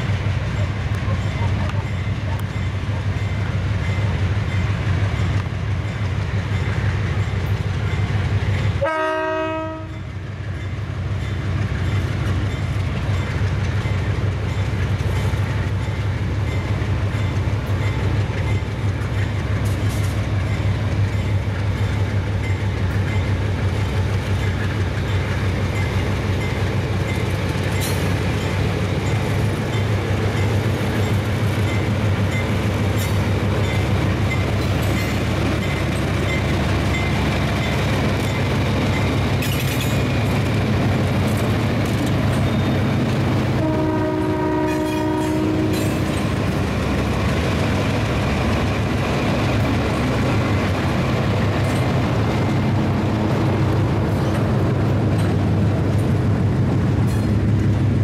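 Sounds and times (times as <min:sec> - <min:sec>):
diesel locomotive engine drone: 0:00.0 - 0:58.0
train wheels on rails: 0:00.0 - 0:58.0
train horn: 0:08.8 - 0:10.1, 0:43.6 - 0:46.1.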